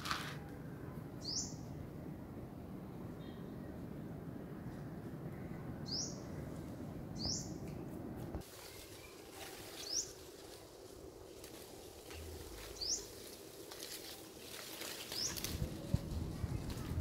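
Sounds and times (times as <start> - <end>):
low background rumble: 15.3 - 17.0.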